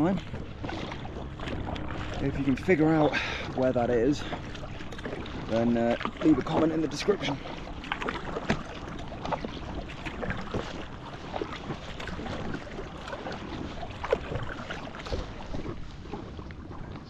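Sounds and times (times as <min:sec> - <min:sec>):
paddle splashes: 0:00.0 - 0:17.0
water lapping against a raft: 0:00.0 - 0:17.0.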